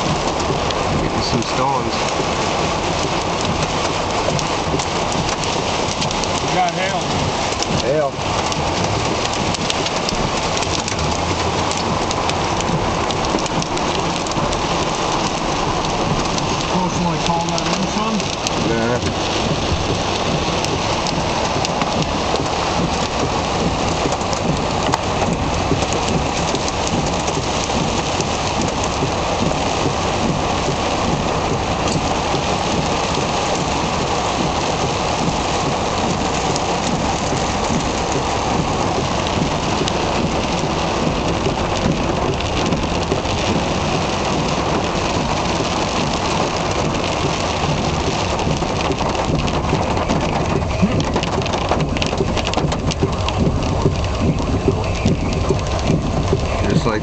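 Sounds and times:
rain and hail on car roof: 0.0 - 57.0.

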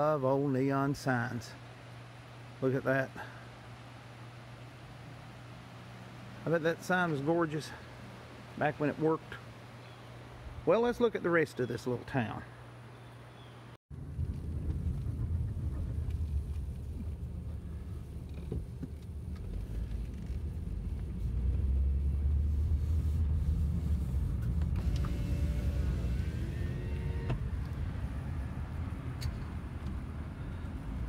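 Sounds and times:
car engine and tyre rumble: 14.0 - 31.0.

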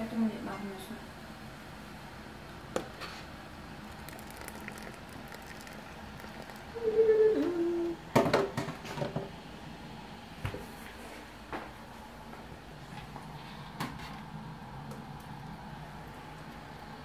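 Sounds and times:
person humming: 6.7 - 8.0.

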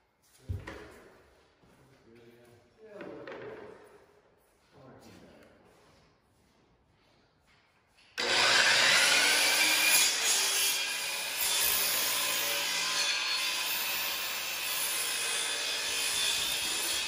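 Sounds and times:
miter saw cutting wood: 8.2 - 17.0.

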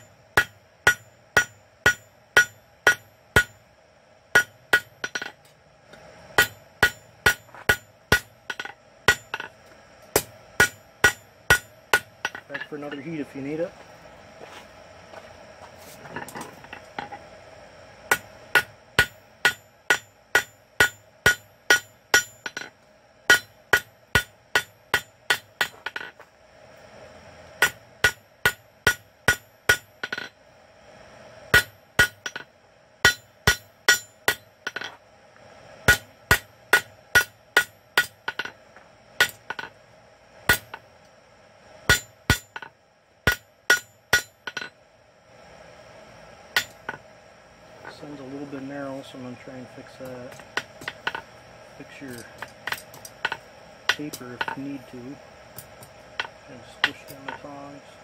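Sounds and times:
hammer striking steel on anvil: 0.0 - 3.6, 4.3 - 13.2, 18.1 - 22.7, 23.3 - 26.1, 27.6 - 30.3, 31.5 - 35.0, 35.9 - 38.6, 39.2 - 39.7, 40.5 - 40.8, 41.9 - 44.8, 46.5 - 47.0, 52.1 - 54.7, 55.6 - 57.7.

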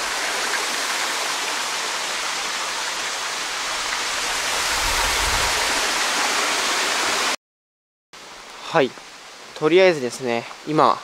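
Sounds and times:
stream running: 0.0 - 7.4
waterfall rushing: 0.0 - 7.4.

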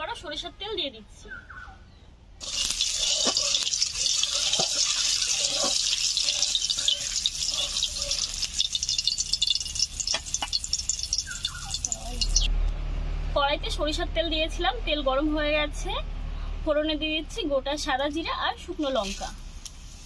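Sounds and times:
oil sizzling and popping: 2.4 - 12.5.

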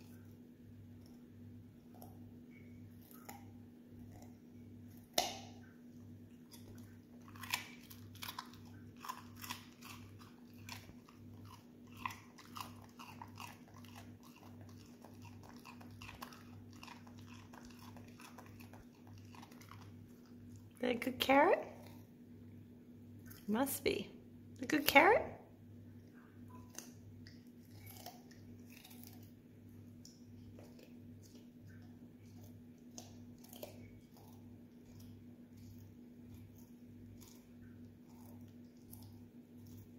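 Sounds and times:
dog crunching carrot: 0.0 - 22.2, 26.5 - 39.9
faint steady hum: 0.0 - 39.9
dog biting carrot snap: 5.0 - 5.6, 6.5 - 20.0.

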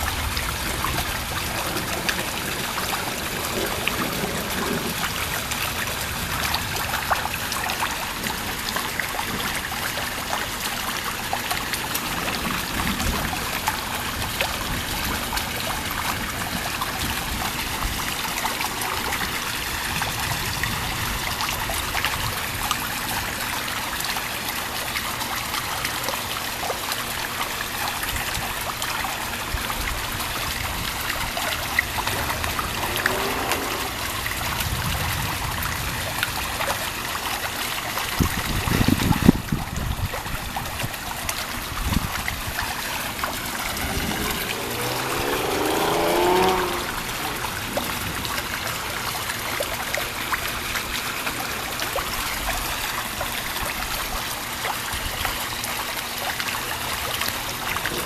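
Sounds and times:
steady rain: 0.0 - 58.0
thunder rumbling: 42.5 - 48.6.

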